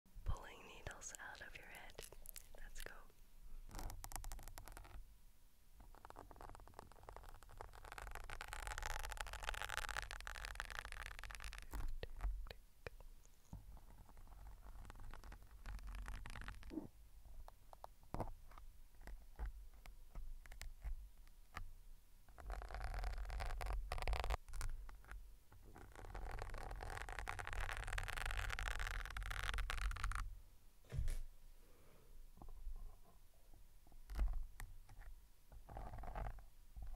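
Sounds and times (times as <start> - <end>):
soft thump: 30.9 - 31.3.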